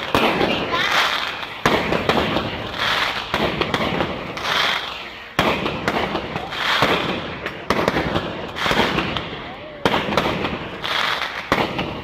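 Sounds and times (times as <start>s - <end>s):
crackle and fizz of burning stars: 0.0s - 9.2s
firework shells bursting: 0.0s - 12.0s.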